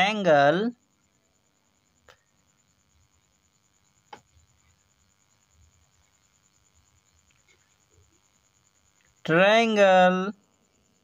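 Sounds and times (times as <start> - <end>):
thin high whine: 0.0 - 11.0
faint clicks: 7.2 - 7.7.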